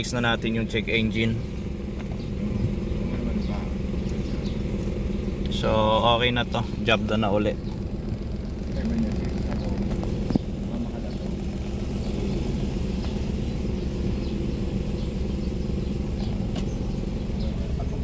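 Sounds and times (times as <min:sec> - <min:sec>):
car engine idling: 0:00.0 - 0:18.0.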